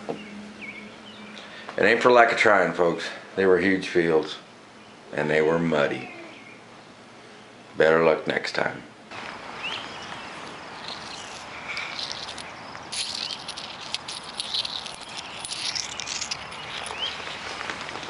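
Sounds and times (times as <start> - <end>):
light clicks and rattles: 10.8 - 18.0.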